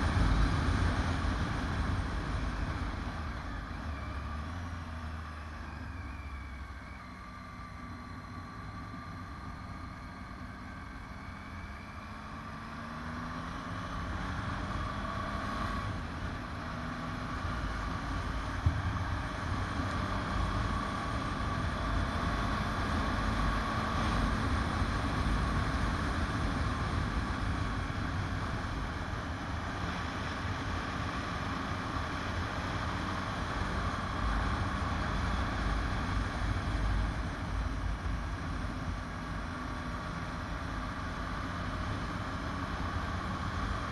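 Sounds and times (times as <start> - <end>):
motorcycle engine accelerating: 7.7 - 43.9.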